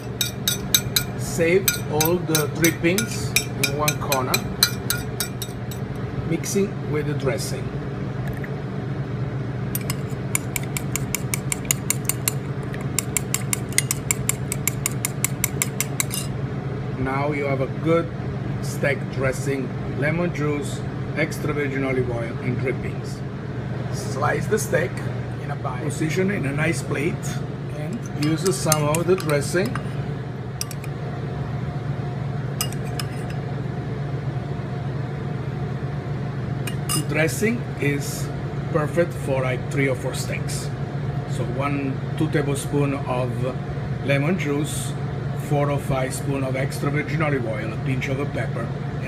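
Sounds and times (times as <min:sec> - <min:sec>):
spoon clinking against ceramic bowl: 0:00.0 - 0:05.9, 0:09.8 - 0:16.3, 0:27.9 - 0:29.9, 0:30.6 - 0:30.9, 0:32.6 - 0:33.4, 0:36.7 - 0:37.1
steady low hum: 0:00.0 - 0:49.0.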